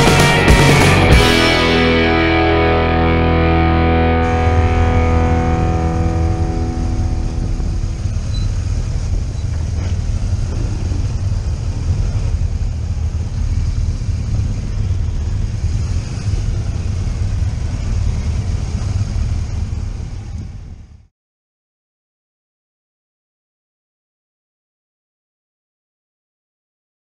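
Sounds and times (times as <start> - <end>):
motorcycle engine rumbling: 0.0 - 21.1
wind buffeting microphone: 5.6 - 21.0.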